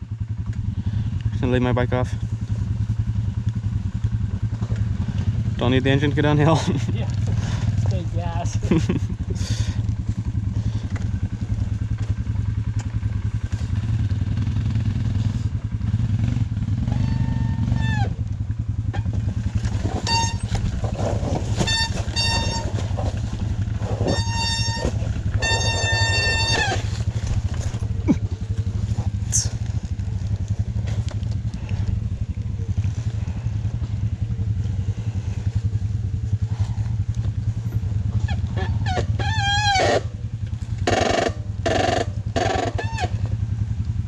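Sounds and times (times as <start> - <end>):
dirt bike engine running: 0.0 - 44.0
high-pitched squeals: 16.9 - 18.2, 19.8 - 28.4.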